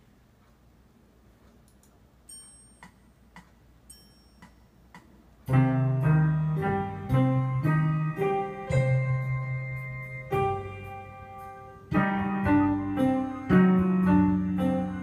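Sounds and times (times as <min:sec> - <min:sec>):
metronome ticking: 0:01.5 - 0:15.0
electronic keyboard playing chords: 0:05.4 - 0:15.0.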